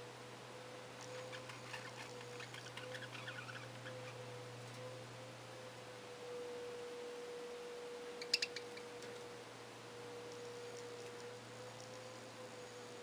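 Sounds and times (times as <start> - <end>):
faint steady tone: 0.0 - 13.0.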